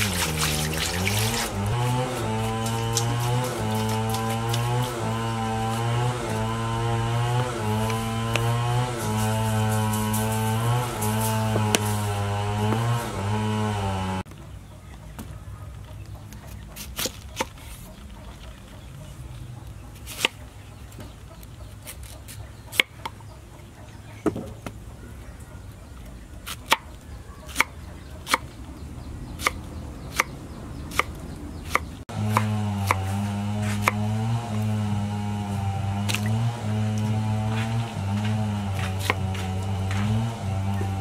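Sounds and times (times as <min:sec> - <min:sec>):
knife chopping on wooden board: 0:00.0 - 0:13.3, 0:20.0 - 0:20.4, 0:27.5 - 0:28.5, 0:29.4 - 0:30.3, 0:30.9 - 0:34.4, 0:35.6 - 0:41.0.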